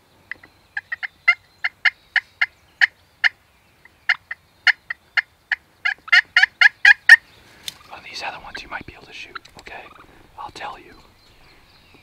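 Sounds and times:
turkey clucking: 0:04.1 - 0:07.2, 0:09.2 - 0:10.3.

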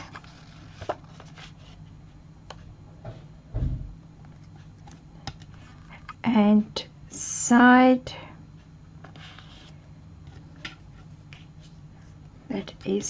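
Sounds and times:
dull thump: 0:03.0 - 0:04.0.

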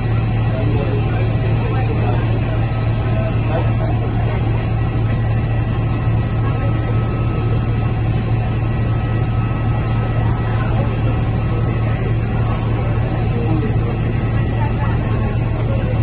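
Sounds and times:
jet engines idling: 0:00.0 - 0:16.0.

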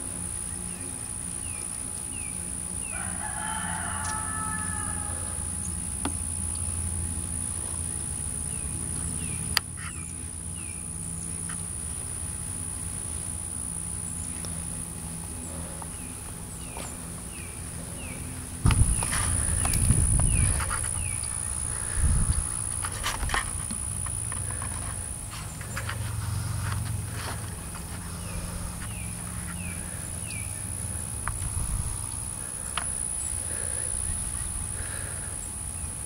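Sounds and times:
steady low hum: 0:00.0 - 0:36.0
rooster crowing: 0:02.8 - 0:05.6.

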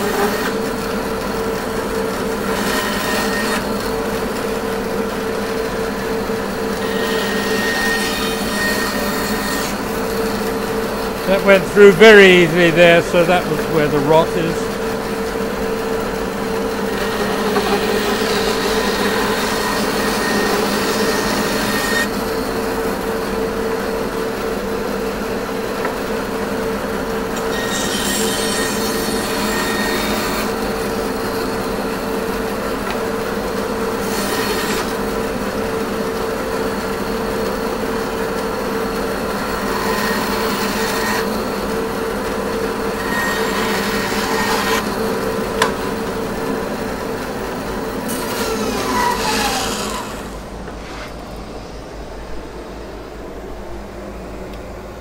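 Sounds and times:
bandsaw humming: 0:06.7 - 0:22.2, 0:42.3 - 0:51.1.

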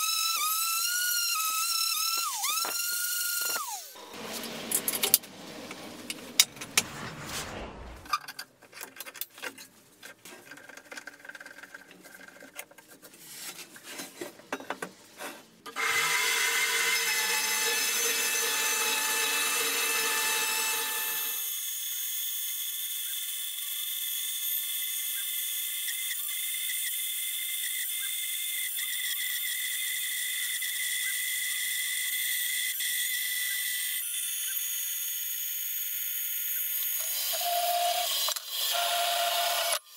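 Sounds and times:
band saw cutting steel: 0:01.3 - 0:08.2, 0:15.7 - 0:21.4.

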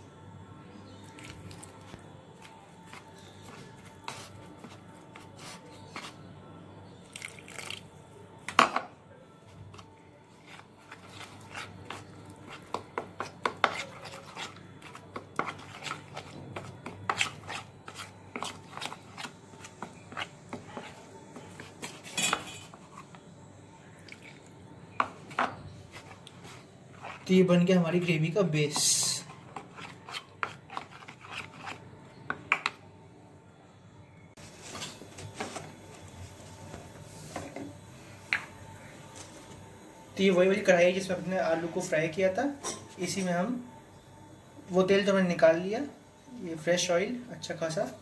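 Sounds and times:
spoon scraping plastic bowl: 0:09.7 - 0:23.2, 0:25.0 - 0:27.3, 0:28.7 - 0:31.9.

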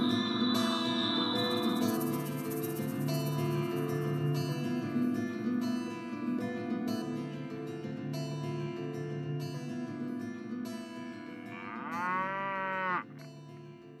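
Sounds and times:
cow mooing: 0:11.4 - 0:13.1.

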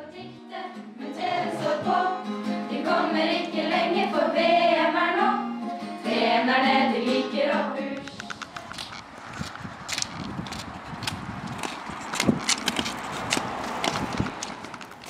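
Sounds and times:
group of girls singing: 0:00.0 - 0:08.1
acoustic guitar: 0:00.0 - 0:09.0.

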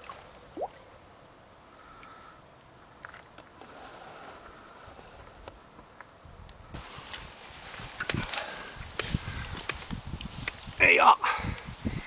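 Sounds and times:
faint ticks: 0:01.9 - 0:02.3.

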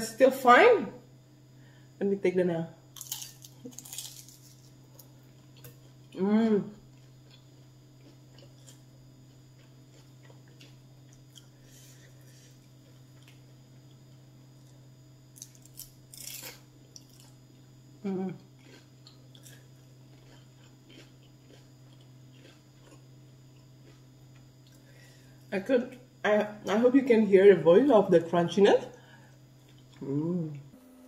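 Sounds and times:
steady low hum: 0:00.0 - 0:31.0
chewing crispy food: 0:03.0 - 0:17.4, 0:18.4 - 0:24.9, 0:29.5 - 0:30.1
person humming mmm: 0:18.0 - 0:18.5, 0:30.0 - 0:30.8.

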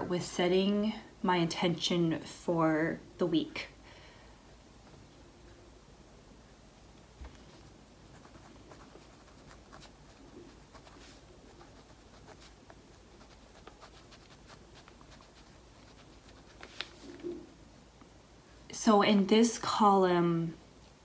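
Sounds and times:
pen scratching on paper: 0:08.1 - 0:16.7.

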